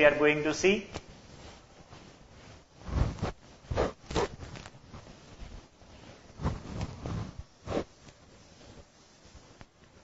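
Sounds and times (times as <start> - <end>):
duster rubbing whiteboard: 1.3 - 5.4, 6.4 - 9.4.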